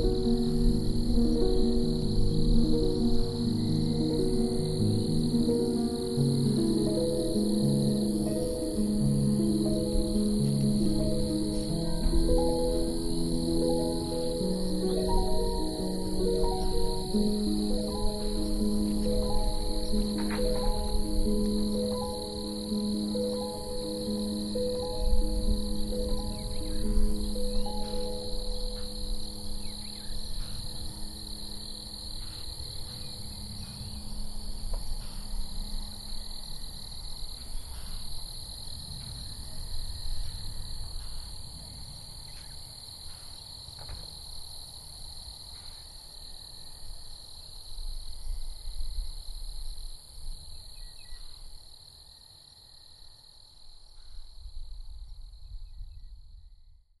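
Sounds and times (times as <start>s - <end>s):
background music: 0.0s - 37.0s.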